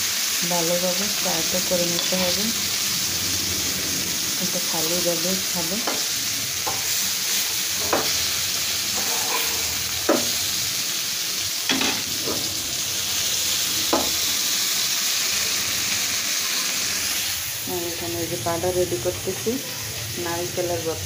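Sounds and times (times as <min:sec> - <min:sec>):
fish sizzling in oil: 0:00.0 - 0:21.0
metal spatula scraping pan: 0:08.9 - 0:10.4.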